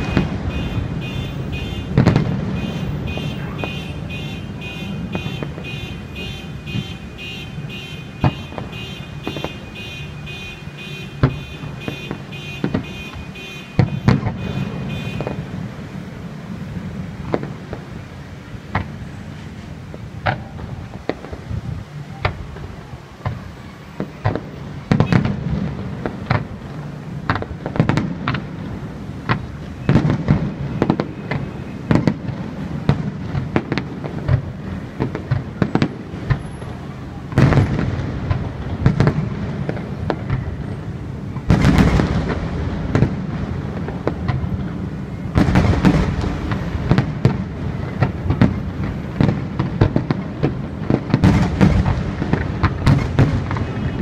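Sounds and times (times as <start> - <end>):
fireworks shells bursting: 0.0 - 15.9.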